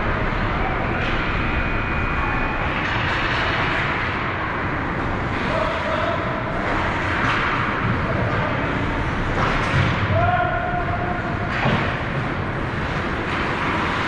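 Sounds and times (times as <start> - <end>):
faint shout: 10.1 - 11.2
skates scraping on ice: 11.8 - 14.0.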